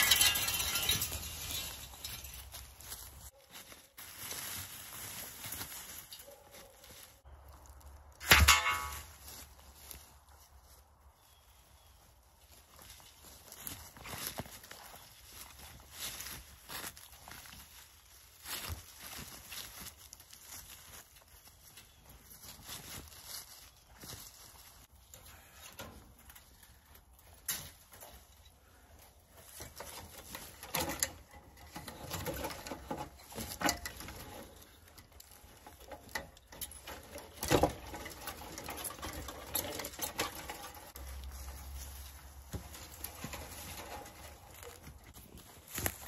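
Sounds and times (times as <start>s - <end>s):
wire rustling and scraping: 0.0s - 46.0s.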